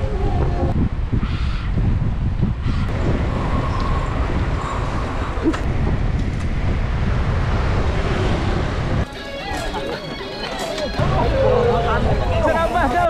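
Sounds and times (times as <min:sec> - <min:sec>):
wind rumble on microphone: 0:00.0 - 0:09.1
road noise: 0:00.0 - 0:13.0.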